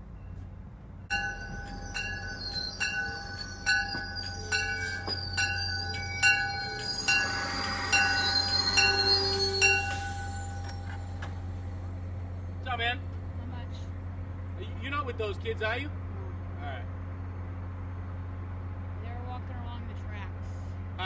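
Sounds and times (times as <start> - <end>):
train low hum: 0.0 - 21.0
train bell ringing: 1.0 - 12.0.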